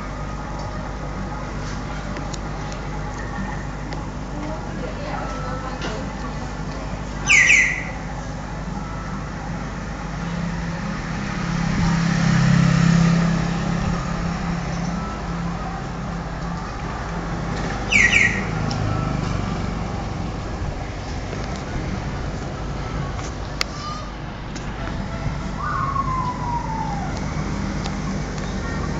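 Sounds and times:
road traffic engine rumble: 0:00.0 - 0:28.9
high squeal falling in pitch: 0:25.5 - 0:27.6.

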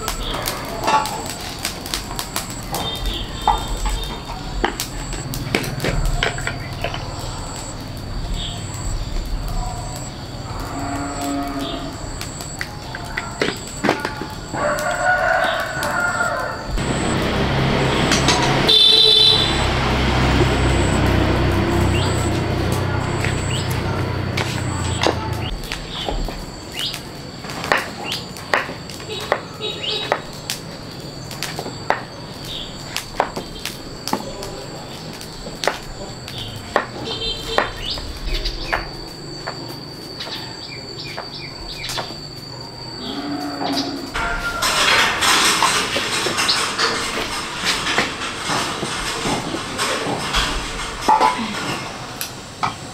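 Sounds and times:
high-pitched insect drone: 0:00.0 - 0:52.9
rooster crowing: 0:09.7 - 0:13.4, 0:14.0 - 0:25.5, 0:42.9 - 0:45.2
low engine hum: 0:16.7 - 0:25.6.

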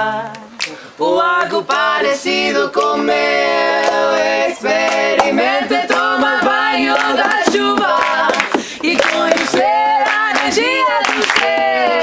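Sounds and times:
women singing together: 0:00.0 - 0:12.0
sharp hand claps: 0:03.8 - 0:11.7.

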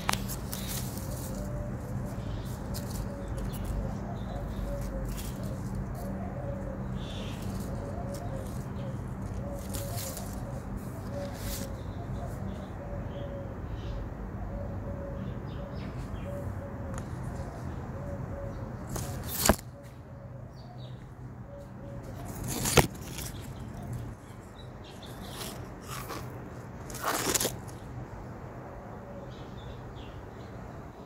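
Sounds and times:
leaves rustling against phone: 0:00.0 - 0:06.2, 0:07.1 - 0:11.9, 0:18.9 - 0:19.8, 0:22.0 - 0:24.3, 0:25.0 - 0:27.9.

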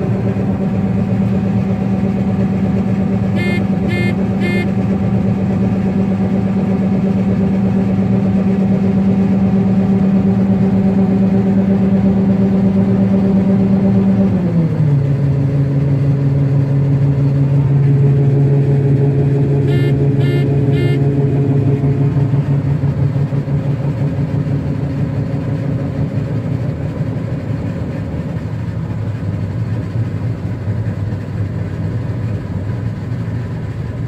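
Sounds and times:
combine engine and auger drone: 0:00.0 - 0:34.0
short beeps: 0:03.4 - 0:04.7, 0:19.7 - 0:21.1.

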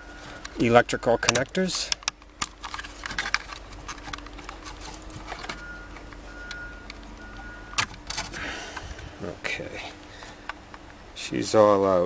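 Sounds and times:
plastic connectors clicking and rattling: 0:01.2 - 0:07.0.

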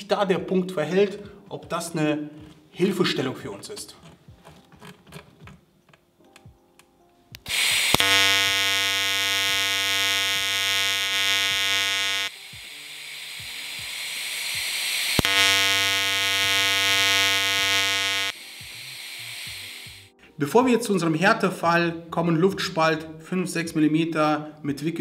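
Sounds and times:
soft hiss: 0:07.3 - 0:20.2
welding arc buzzing: 0:07.4 - 0:20.1.

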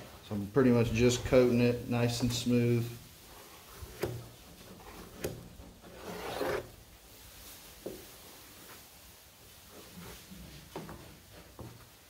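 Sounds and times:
spreader scraping filler: 0:03.3 - 0:06.8.

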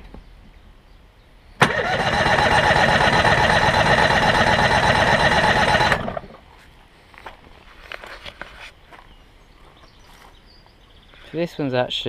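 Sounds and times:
engine cranking on starter: 0:01.6 - 0:06.4.

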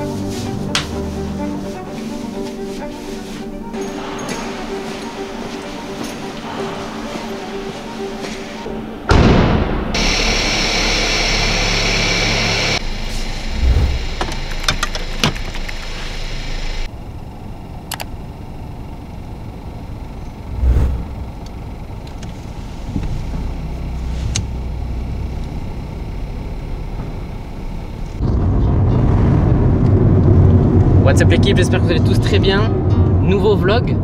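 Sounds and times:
car engine idling: 0:10.0 - 0:28.2.

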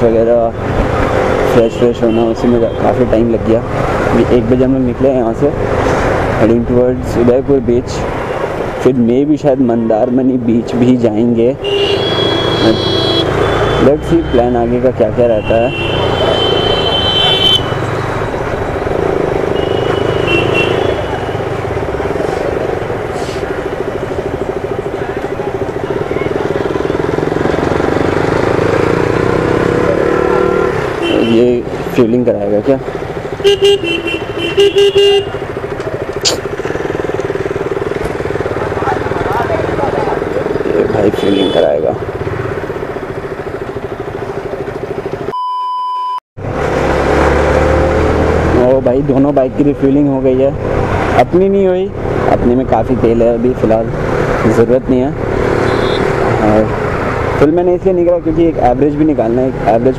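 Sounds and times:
road and wind noise: 0:00.0 - 0:45.4, 0:46.4 - 0:59.9
motorcycle engine running: 0:10.4 - 0:45.3, 0:46.5 - 0:59.9
motorcycle engine idling: 0:32.9 - 0:45.3
censor bleep: 0:45.3 - 0:46.2
short high-pitched beep: 0:45.3 - 0:46.2.

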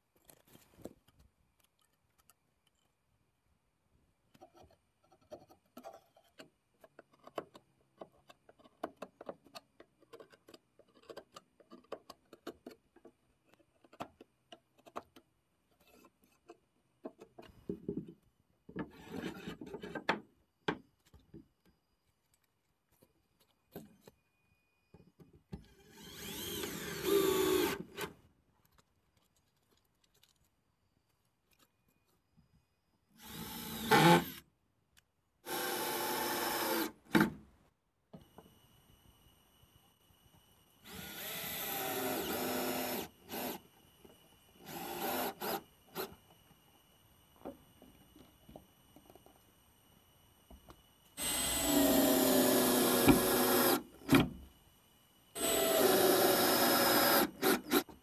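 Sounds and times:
cordless drill driving screws: 0:25.6 - 0:28.2, 0:33.2 - 0:34.4, 0:35.4 - 0:37.0, 0:40.8 - 0:43.7, 0:44.6 - 0:46.2, 0:51.2 - 0:54.3, 0:55.4 - 0:58.0.

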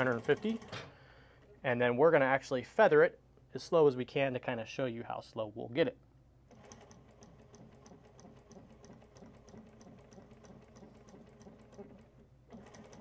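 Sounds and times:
sewing machine ticking: 0:00.0 - 0:00.9, 0:06.5 - 0:13.0.

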